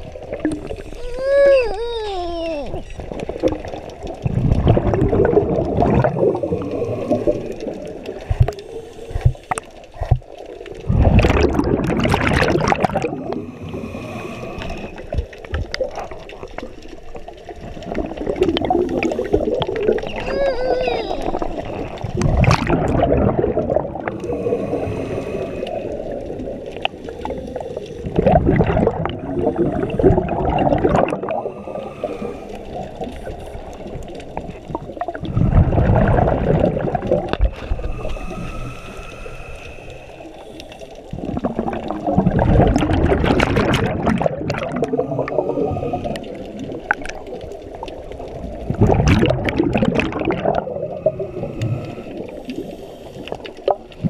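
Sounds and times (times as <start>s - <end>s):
diver exhaling bubbles: 0.0s - 54.0s
hissing regulator inhalations: 13.3s - 15.2s, 24.1s - 28.2s, 31.3s - 33.8s, 37.6s - 41.2s, 51.0s - 53.8s.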